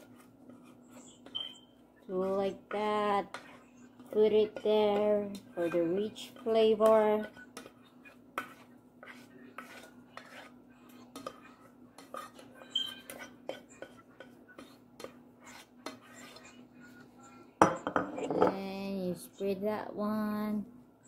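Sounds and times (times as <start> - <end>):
utensil scraping a metal pot: 0.0 - 16.6.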